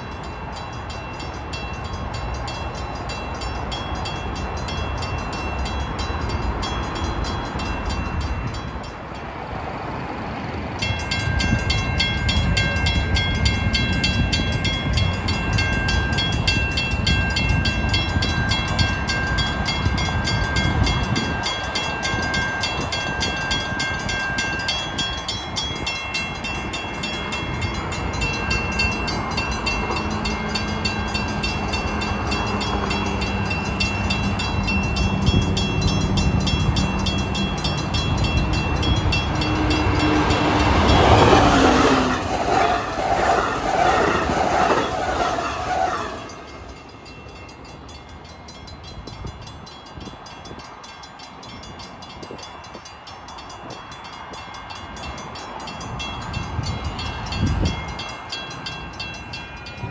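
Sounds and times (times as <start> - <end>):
crossing bell ringing: 0.0 - 59.9
diesel train rumble: 0.0 - 59.9.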